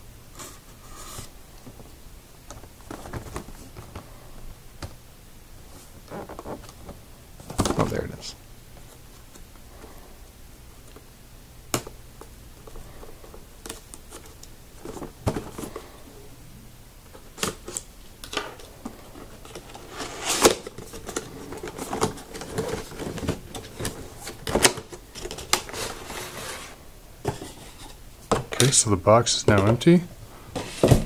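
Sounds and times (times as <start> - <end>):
plastic scraping against cardboard: 19.0 - 28.0.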